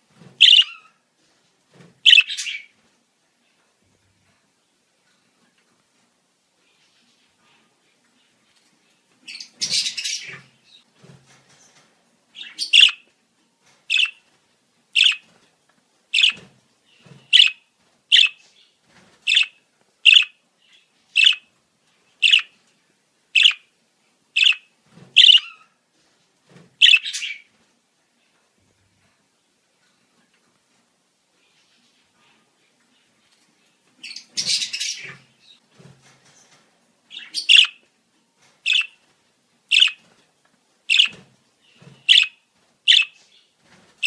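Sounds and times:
budgerigar short sharp calls: 0.4s - 0.7s, 25.2s - 25.4s.

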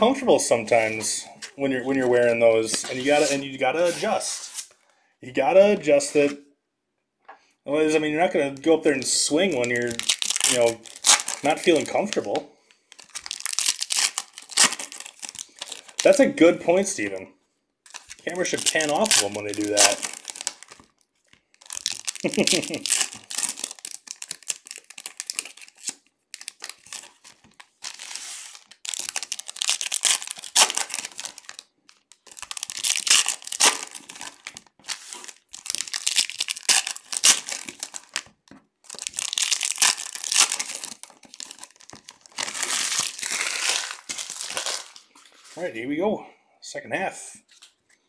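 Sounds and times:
foil wrappers crinkling and tearing: 9.0s - 16.2s, 17.9s - 45.5s.

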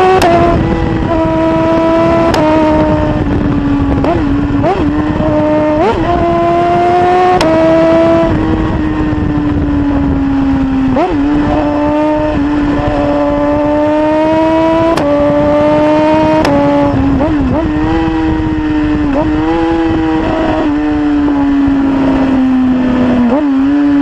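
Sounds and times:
motorcycle engine at high revs: 0.0s - 24.0s
wind rush: 0.0s - 24.0s
gear change click: 7.3s - 7.6s, 14.9s - 15.2s.

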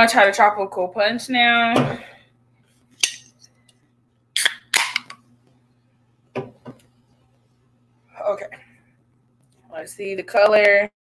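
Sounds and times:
soda can tab clicks and cracks: 4.4s - 5.2s.

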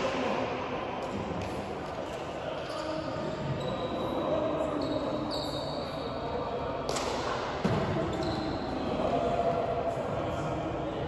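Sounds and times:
indistinct chatter of players: 0.0s - 11.0s.

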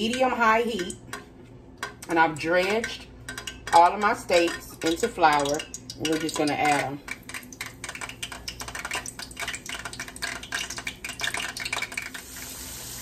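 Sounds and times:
steak frying in hot oil: 4.8s - 13.0s.

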